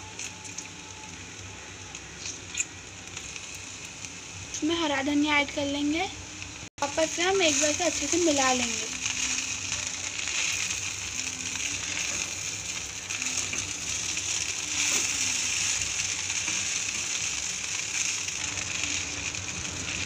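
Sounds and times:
light sizzle: 0.0s - 20.0s
spatula scraping in a pan: 7.2s - 19.7s.

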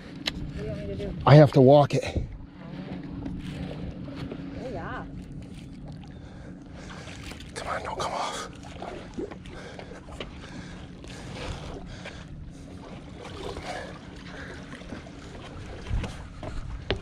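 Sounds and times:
footsteps on wooden dock: 2.2s - 4.6s, 9.3s - 13.0s, 14.6s - 17.0s
wind on microphone: 15.2s - 17.0s.

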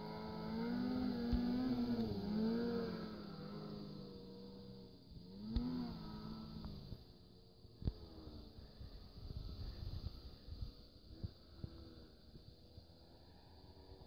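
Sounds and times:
snowmobile engine revving: 0.0s - 7.2s.

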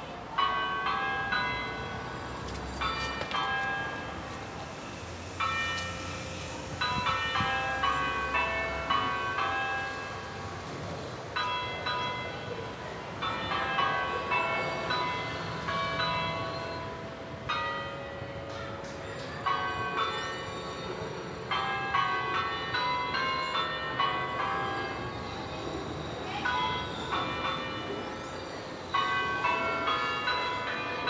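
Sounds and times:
church bells ringing: 0.0s - 31.0s.

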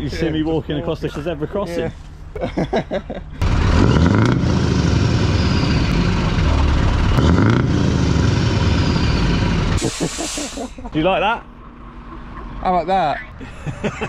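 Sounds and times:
lorry engine revving: 3.4s - 10.6s.

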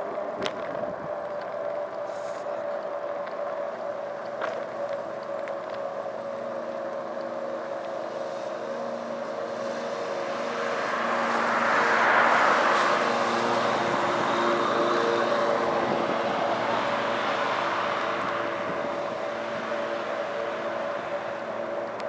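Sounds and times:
steady hum: 0.0s - 22.0s
car passing by: 4.4s - 22.0s.

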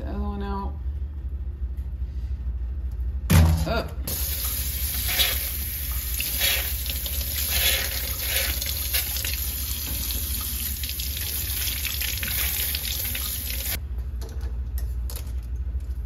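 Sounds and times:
faucet running into sink: 4.1s - 13.8s.

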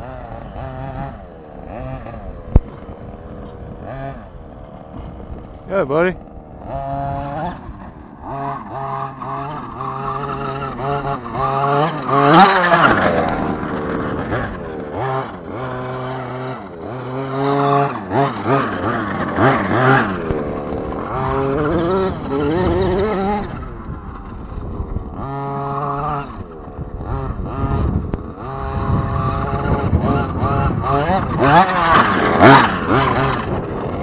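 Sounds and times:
small two-stroke engine revving: 0.0s - 34.0s.

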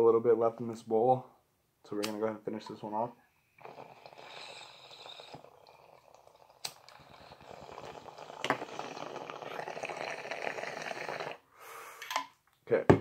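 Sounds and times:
sharp click: 2.0s - 2.2s
water bubbling in bong: 3.6s - 11.4s.

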